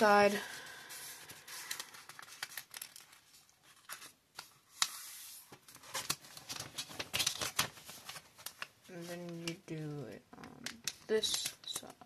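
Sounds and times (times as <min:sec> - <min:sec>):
paper rustling and creasing: 0:00.4 - 0:09.6.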